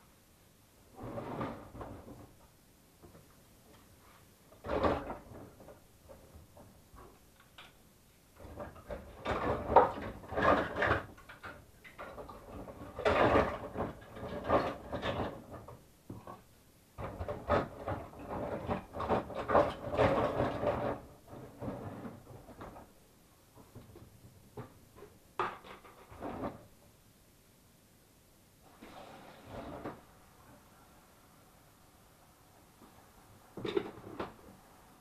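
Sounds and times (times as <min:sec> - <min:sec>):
plastic parts rubbing and clattering: 0:04.6 - 0:07.2, 0:08.4 - 0:23.0, 0:23.6 - 0:26.8.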